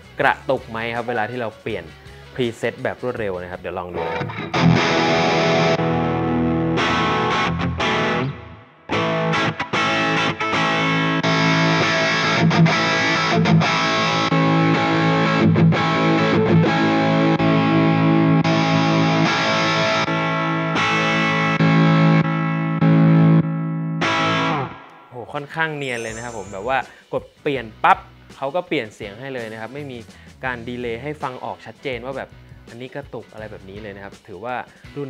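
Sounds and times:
distorted electric guitar chords: 4.0s - 25.1s, 25.8s - 27.0s.

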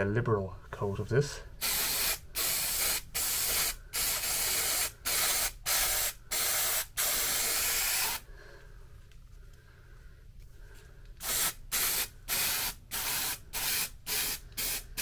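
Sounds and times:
aerosol can spraying: 1.6s - 8.2s, 11.2s - 15.0s.

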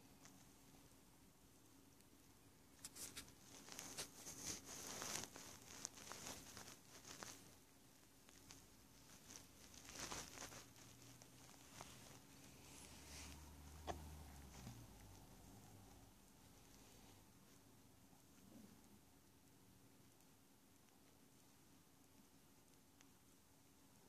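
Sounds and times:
fur and bedding rustling: 2.9s - 17.6s.

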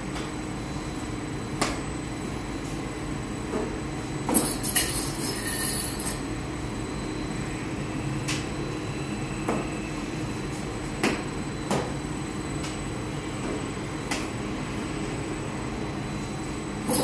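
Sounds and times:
sharp knocks and clinks: 4.3s - 6.2s.

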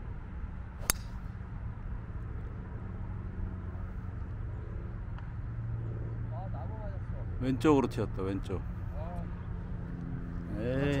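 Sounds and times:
golf club striking ball: 0.8s - 1.2s.

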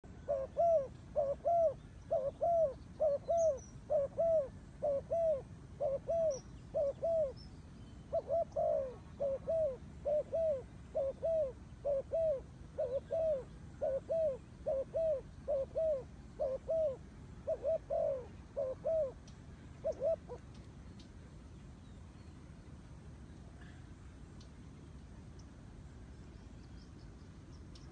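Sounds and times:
dove cooing: 0.1s - 7.4s, 8.1s - 20.5s.

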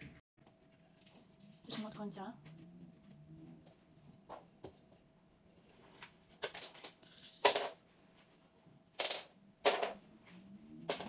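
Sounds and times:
rustling and scraping handling noises: 0.4s - 8.8s.

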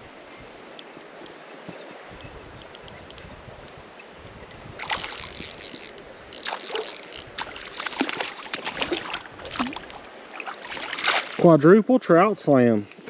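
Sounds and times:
flowing water: 0.0s - 13.0s
fish splashing: 4.8s - 5.6s, 6.4s - 11.4s.

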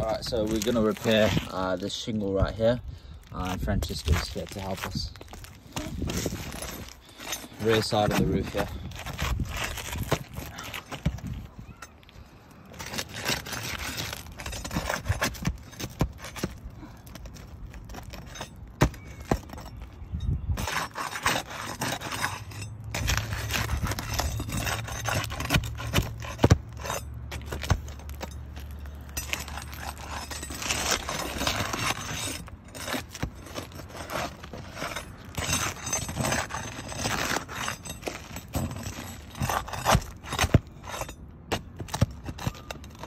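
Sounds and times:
pry bar scraping shingles: 0.0s - 43.0s.

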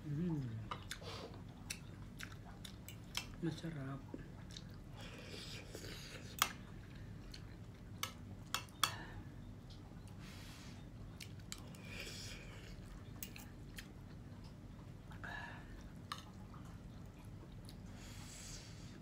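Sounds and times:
chewing: 0.3s - 3.4s, 4.1s - 8.9s, 11.0s - 18.1s.

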